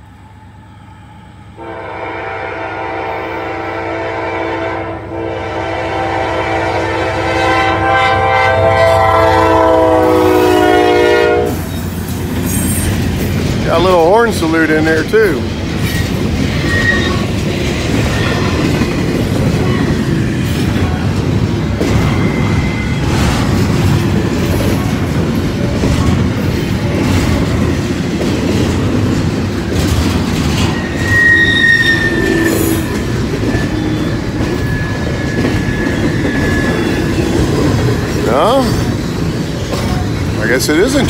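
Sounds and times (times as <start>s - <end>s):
freight train rumbling on rails: 0.0s - 41.0s
train clanks: 6.2s - 41.0s
high wheel squeals: 11.6s - 13.1s, 15.8s - 17.4s, 21.6s - 23.3s, 30.6s - 39.0s.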